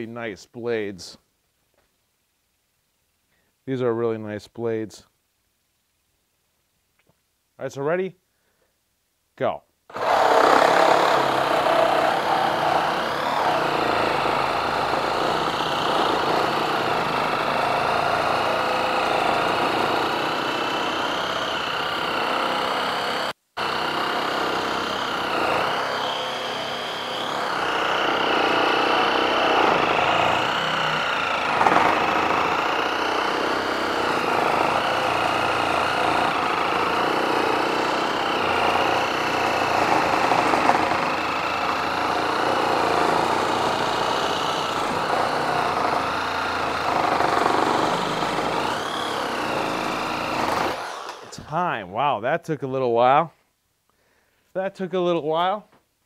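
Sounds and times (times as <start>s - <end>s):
reciprocating saw cutting wood: 9.9s - 51.4s.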